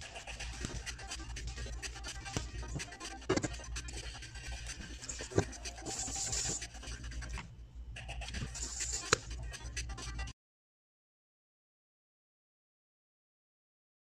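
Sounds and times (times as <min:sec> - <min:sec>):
dough scraping steel bowl: 0:00.0 - 0:10.3
steady low hum: 0:00.0 - 0:10.3.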